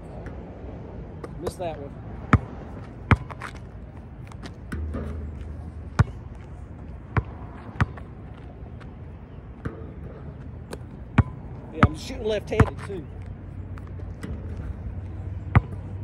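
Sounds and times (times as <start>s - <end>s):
basketball bouncing: 2.3s - 3.6s, 4.3s - 6.5s, 7.1s - 8.9s, 9.6s - 12.9s, 15.4s - 16.0s.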